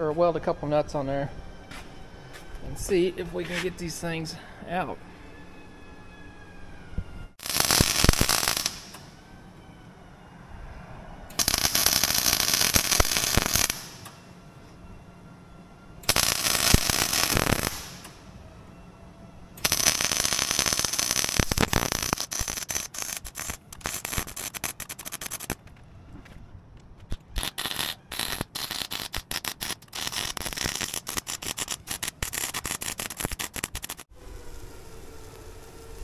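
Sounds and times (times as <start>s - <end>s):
arc welder crackling: 7.4s - 9.1s, 11.4s - 14.2s, 16.1s - 18.2s, 19.6s - 25.6s, 27.1s - 36.0s.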